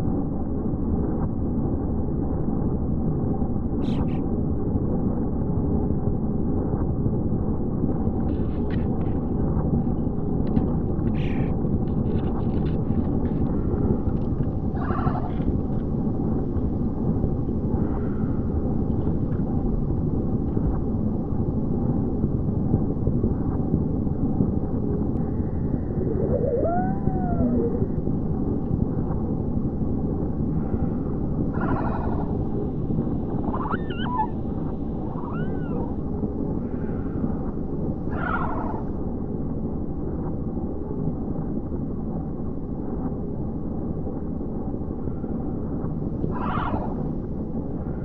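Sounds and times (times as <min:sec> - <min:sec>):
low rumbling noise: 0:00.0 - 0:48.0
wailing tone rising and falling: 0:25.3 - 0:28.1.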